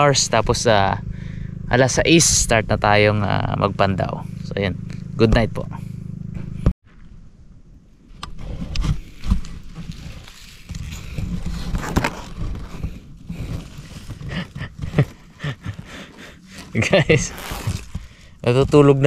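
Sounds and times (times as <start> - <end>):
close rustling: 8.4 - 19.0.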